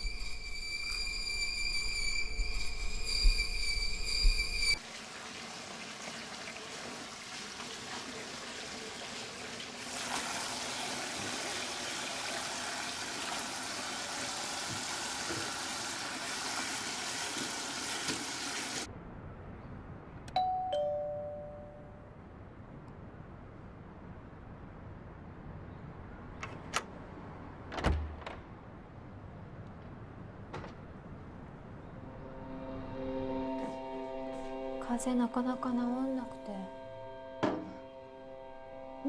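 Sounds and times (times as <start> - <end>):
tap water running into sink: 4.8 - 18.9
two-tone doorbell chime: 20.4 - 22.1.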